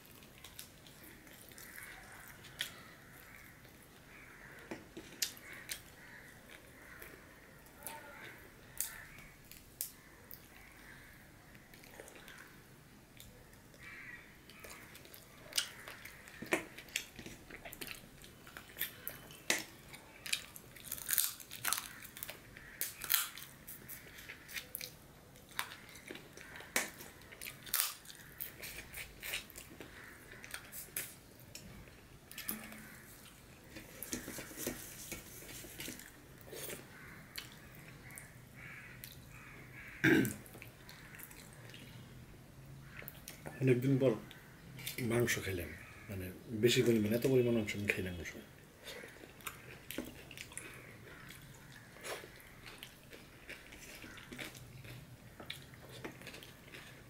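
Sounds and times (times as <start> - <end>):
man chewing with wet mouth clicks: 14.5 - 34.8, 35.6 - 38.3, 48.8 - 57.0.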